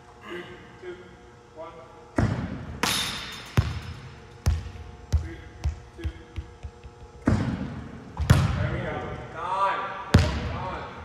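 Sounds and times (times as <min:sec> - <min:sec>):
volleyball hitting gym floor: 0:02.1 - 0:08.8, 0:10.1 - 0:10.7.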